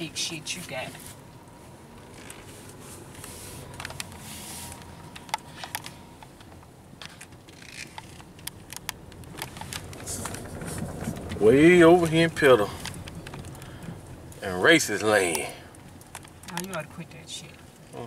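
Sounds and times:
car engine and road hum: 0.0s - 18.0s.

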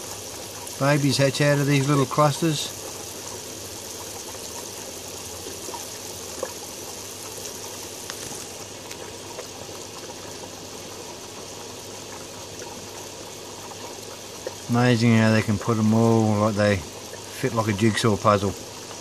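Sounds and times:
low pump hum: 0.0s - 19.0s
water running: 0.0s - 19.0s
faint ticks: 8.0s - 9.5s.

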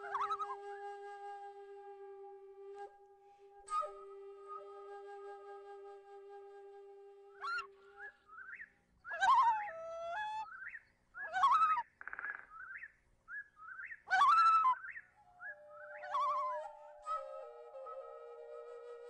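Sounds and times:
held flute note: 0.0s - 8.0s, 15.6s - 19.0s
bird chirps and whistled calls: 7.4s - 18.1s.

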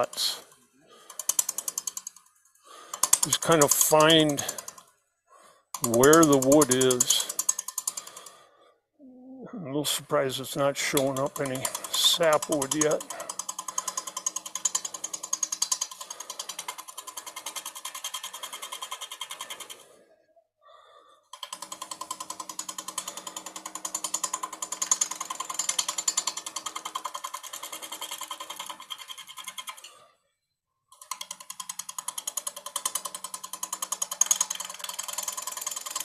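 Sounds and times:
lathe tool clattering on wood: 2.9s - 4.8s, 5.8s - 8.2s, 10.7s - 19.8s, 21.4s - 29.9s, 31.0s - 36.0s.

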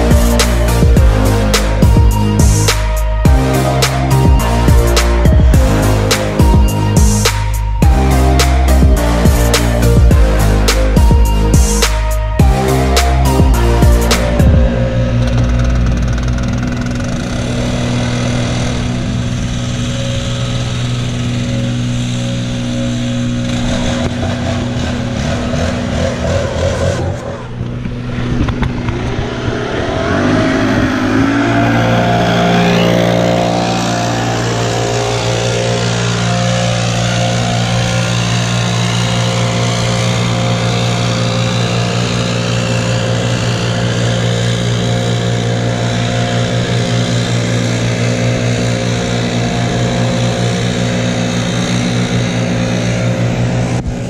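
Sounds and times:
small petrol engine revving: 14.4s - 54.0s.

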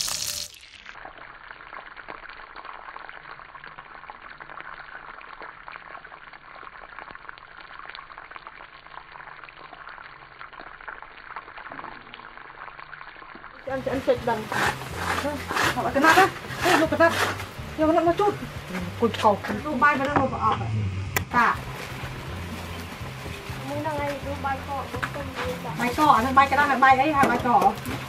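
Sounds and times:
oil sizzling around frying fish: 0.0s - 28.0s.

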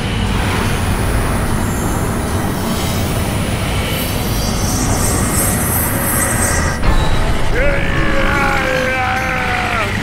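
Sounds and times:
deep rumble: 0.0s - 9.2s
energy beam rush: 0.2s - 8.5s
high shimmering hiss: 0.3s - 6.8s.

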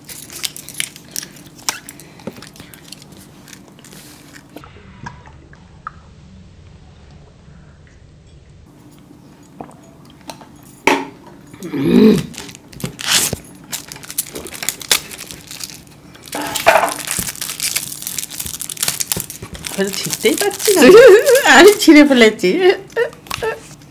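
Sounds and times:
plastic wrapper crinkling and tearing: 0.0s - 4.6s, 12.2s - 22.0s.

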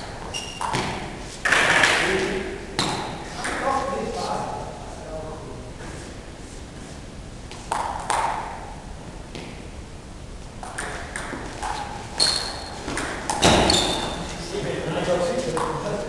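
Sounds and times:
table tennis ball clicking: 10.6s - 11.8s.

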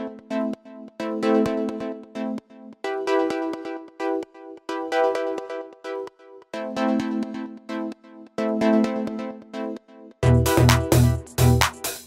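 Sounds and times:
pulsing synthesizer chords: 0.0s - 12.0s.

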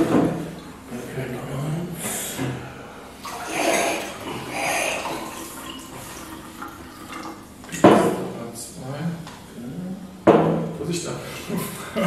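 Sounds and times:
water pouring into glasses: 3.2s - 7.8s.

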